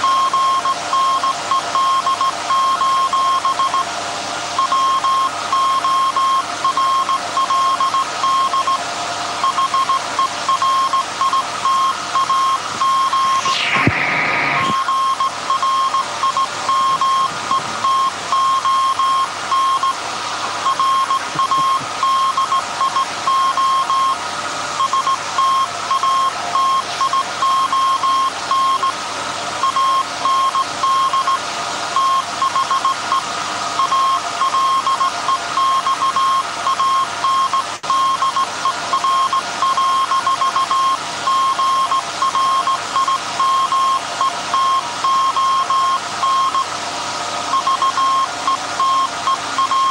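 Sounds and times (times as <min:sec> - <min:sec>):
morse code tone: 0:00.0 - 0:03.9, 0:04.6 - 0:08.8, 0:09.4 - 0:13.9, 0:14.5 - 0:20.0, 0:20.6 - 0:24.2, 0:24.8 - 0:29.0, 0:29.6 - 0:31.4, 0:33.8 - 0:46.7, 0:47.5 - 0:49.9
alternator humming: 0:04.5 - 0:31.2.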